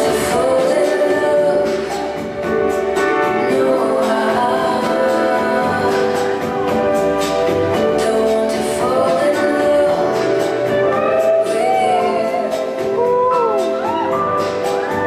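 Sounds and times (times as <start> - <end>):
instrumental accompaniment: 0.0 - 15.0
person singing: 0.0 - 15.0.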